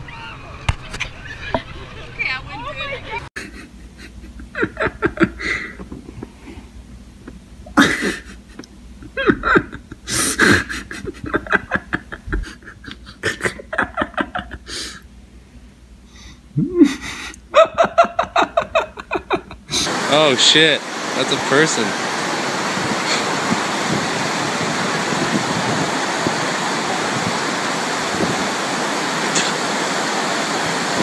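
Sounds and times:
person laughing breathily: 3.4s - 6.7s, 7.8s - 15.0s, 16.2s - 20.0s, 23.0s - 23.4s.

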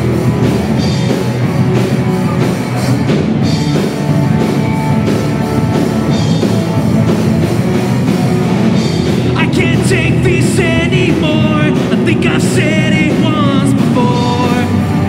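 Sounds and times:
drum kit: 0.0s - 15.0s
electric guitars: 0.0s - 15.0s.

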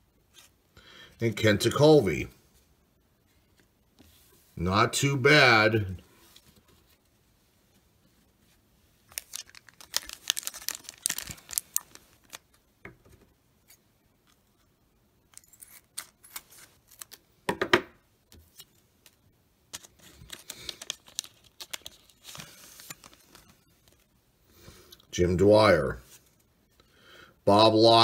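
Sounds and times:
foil wrapper tearing: 9.1s - 12.4s, 19.8s - 23.5s
foil wrapper crinkling: 9.1s - 12.6s, 19.7s - 24.0s.

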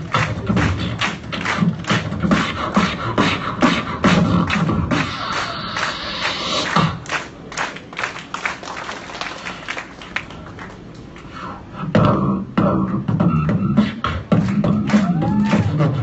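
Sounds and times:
beatboxing: 0.0s - 7.8s, 11.1s - 16.0s.

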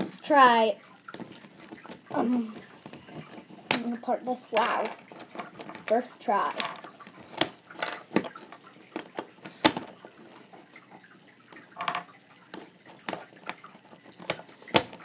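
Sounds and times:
plastic cube pieces clicking: 4.6s - 9.9s, 12.6s - 15.0s.

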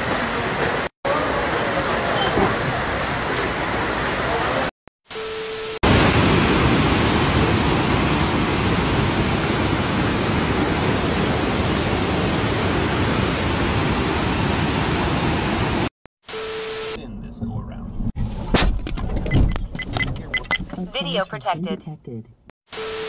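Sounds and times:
floodwater rushing: 5.9s - 15.9s.

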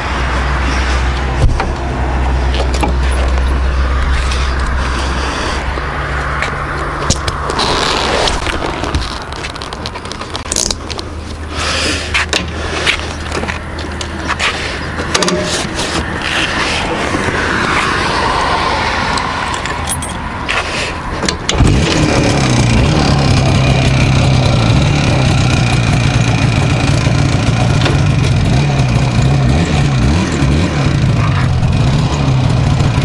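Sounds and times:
sharp clicks and scraping handling: 6.3s - 11.4s, 12.1s - 17.9s
two-stroke engine idling: 21.6s - 33.0s.

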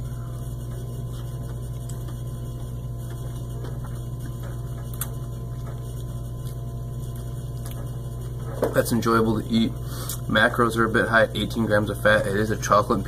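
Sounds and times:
low electrical hum: 0.0s - 13.0s
chewing crunches: 3.0s - 8.4s.

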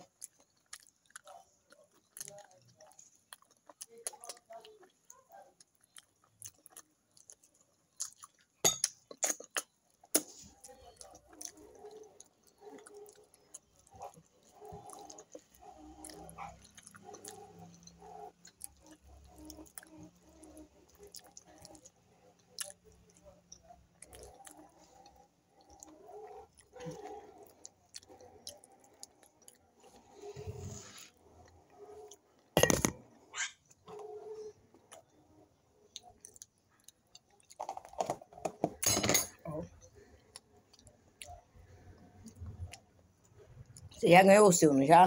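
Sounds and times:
chewing and wet mouth clicks: 0.0s - 30.0s, 35.9s - 37.9s, 39.8s - 42.8s.

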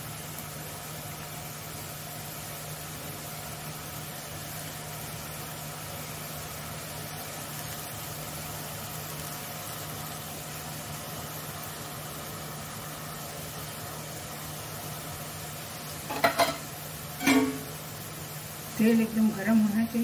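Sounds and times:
batter sizzling in hot oil: 0.0s - 20.0s.

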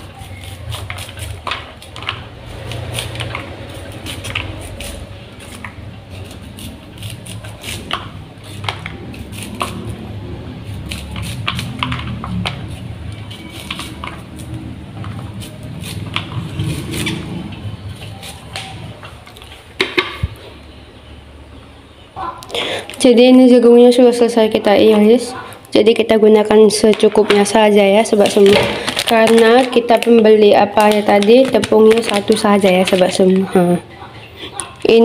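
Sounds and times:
knife scraping corn kernels: 0.0s - 19.6s
kernels pattering into plastic bowl: 28.2s - 33.5s.

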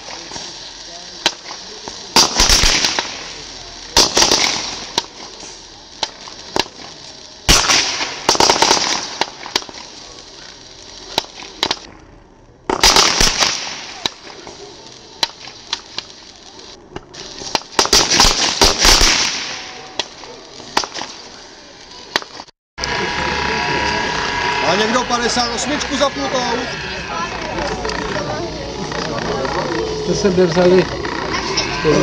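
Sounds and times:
sharp pops: 0.0s - 12.0s, 12.6s - 22.9s
fireworks crackling bursts: 0.0s - 32.0s
fireworks hissing: 0.0s - 32.0s.

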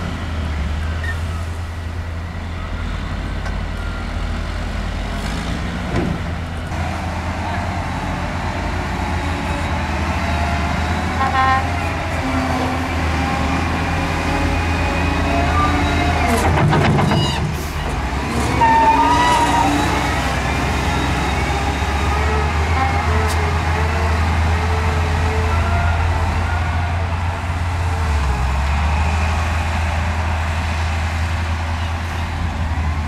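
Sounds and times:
diesel machinery rumbling: 0.0s - 33.0s.

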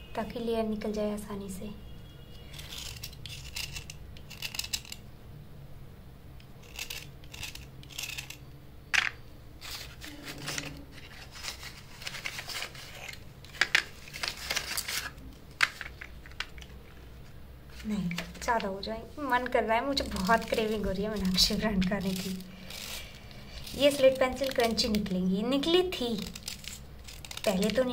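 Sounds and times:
knife scraping slate pencils: 2.4s - 5.0s, 6.6s - 8.5s, 20.0s - 25.1s, 26.2s - 27.9s.

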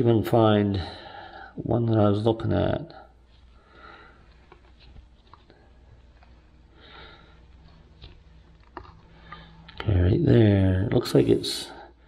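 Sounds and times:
soft breaths: 0.7s - 1.7s, 2.9s - 9.8s.

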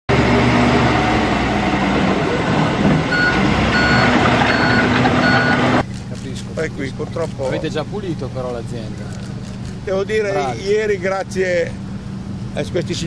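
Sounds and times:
heavy vehicle engine running: 0.1s - 13.0s
reversing alarm beeps: 3.1s - 5.8s.

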